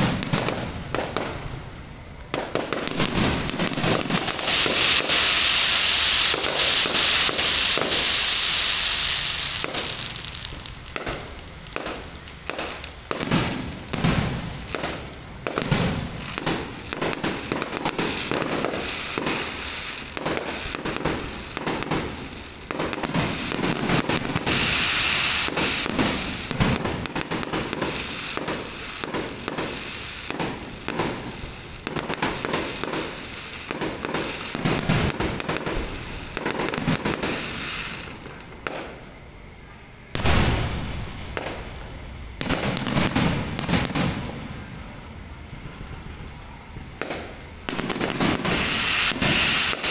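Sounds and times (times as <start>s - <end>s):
firework bursts and booms: 0.0s - 49.9s
fireworks crackling: 0.0s - 49.9s
loud firework bang: 40.2s - 44.7s.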